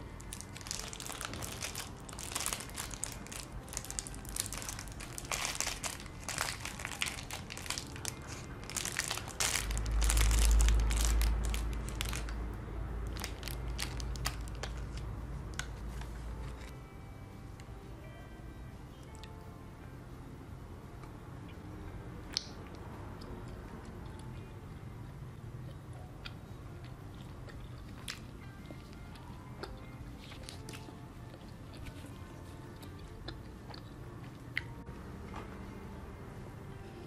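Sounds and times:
plastic wrapper crinkling: 0:00.2 - 0:12.4, 0:13.0 - 0:15.0.

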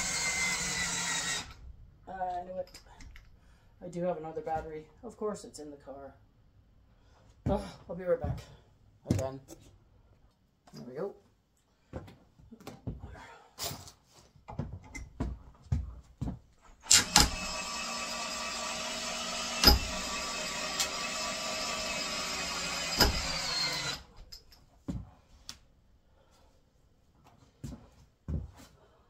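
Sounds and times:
cordless drill boring into wood: 0:00.0 - 0:01.6, 0:16.8 - 0:24.2.

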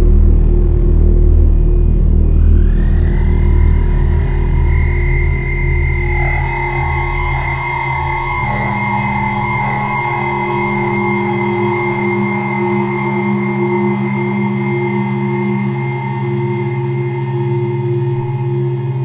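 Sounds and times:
deep rumble: 0:00.0 - 0:14.1
electronic drone music: 0:00.0 - 0:19.0.

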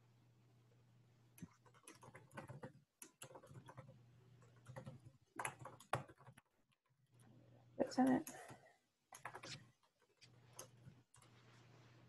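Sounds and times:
keyboard typing: 0:01.3 - 0:06.8, 0:08.0 - 0:11.4.

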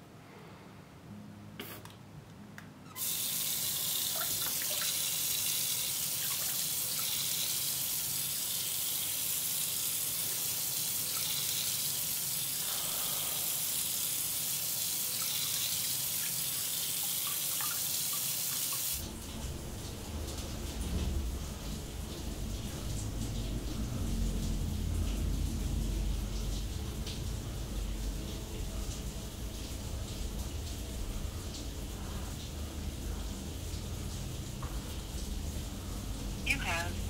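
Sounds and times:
tap water running into basin: 0:03.0 - 0:23.9.

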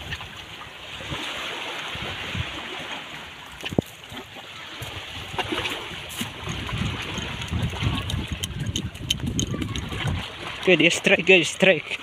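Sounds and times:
waves splashing against rocks: 0:00.0 - 0:12.0.

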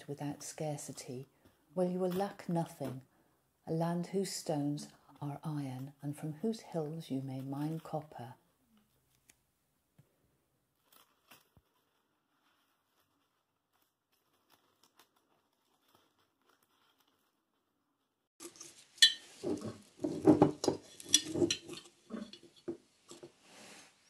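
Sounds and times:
jar handling: 0:18.4 - 0:23.4
metal spoon clinking against mug: 0:19.0 - 0:19.3, 0:20.6 - 0:22.4
ceramic mug moved on counter: 0:19.1 - 0:23.2.

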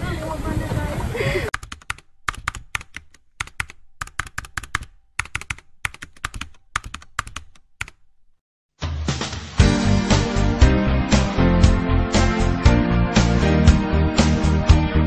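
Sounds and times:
typing keystroke clicks: 0:01.5 - 0:08.0.

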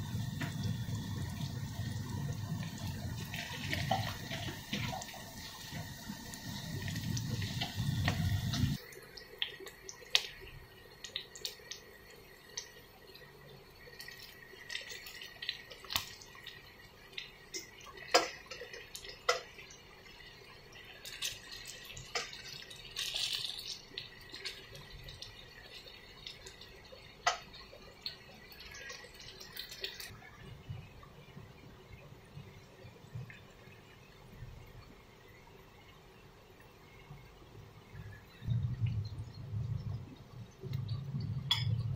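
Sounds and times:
potatoes sizzling in oil: 0:00.0 - 0:30.2.

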